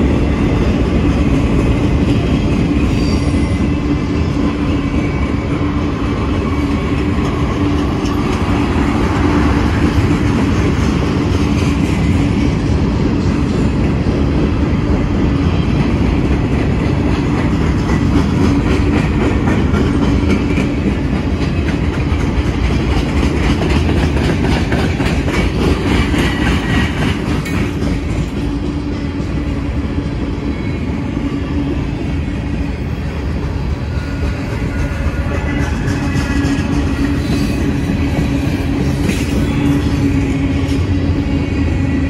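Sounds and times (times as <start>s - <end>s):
train wheels rumbling on rails: 0.0s - 42.0s
wheels clicking over rail joints: 14.8s - 29.4s.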